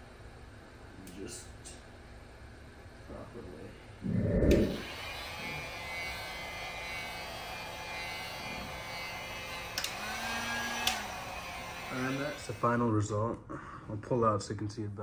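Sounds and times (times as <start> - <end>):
heat gun blowing: 4.2 - 12.9.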